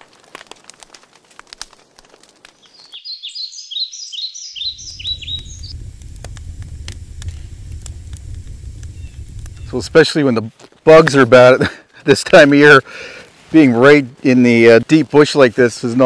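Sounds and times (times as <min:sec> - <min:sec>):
campfire crackling and popping: 0:00.0 - 0:03.7, 0:04.5 - 0:16.0
songbird chirping: 0:02.6 - 0:05.9
steady low rumble: 0:04.7 - 0:10.1.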